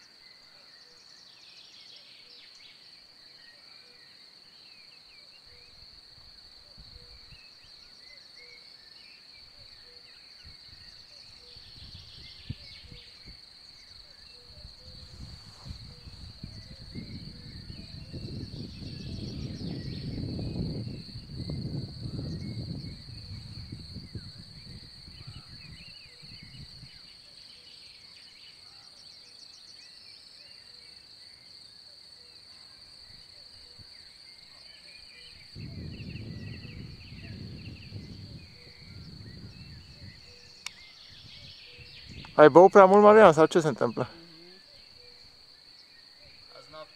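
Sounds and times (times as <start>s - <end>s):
wind gusting on microphone: 10.4s - 13.5s, 14.4s - 27.1s, 35.3s - 44.1s
birds chirping: 35.0s - 46.9s.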